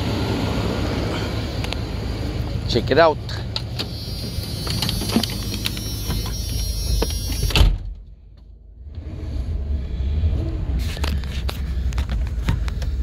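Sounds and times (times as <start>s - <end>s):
van engine idling: 0.0s - 7.6s, 9.4s - 13.0s
van door slamming: 3.7s - 8.0s.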